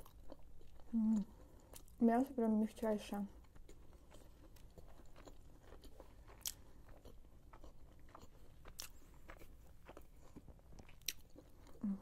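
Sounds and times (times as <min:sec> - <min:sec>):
wet chewing mouth sounds: 0:03.4 - 0:12.0.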